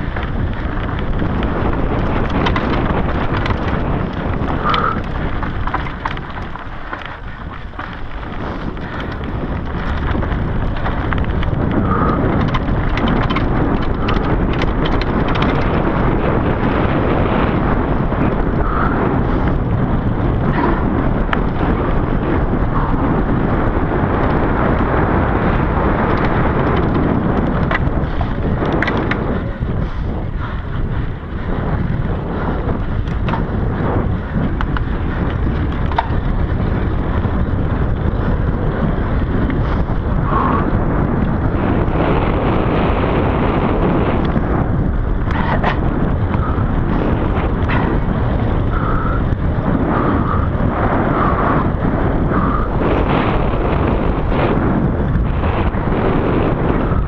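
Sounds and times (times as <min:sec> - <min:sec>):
small clicks and knocks: 0:00.0 - 0:15.8, 0:34.6 - 0:36.4
bike rattling: 0:00.0 - 0:57.0
tyres rumbling over trail: 0:00.0 - 0:57.0
wind rushing over microphone: 0:00.0 - 0:57.0.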